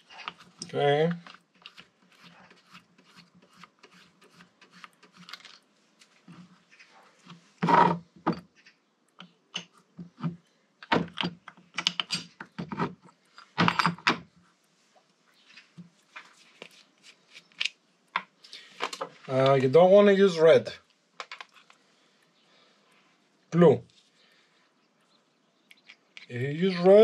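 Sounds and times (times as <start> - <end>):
metal tools clattering on workbench: 13.4 - 14.2.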